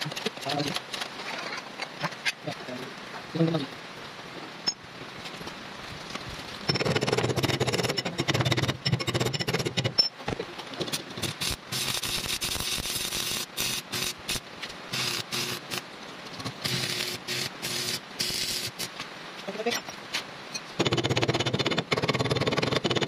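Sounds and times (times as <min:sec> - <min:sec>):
welding arc crackling and sizzling: 0:06.7 - 0:19.7.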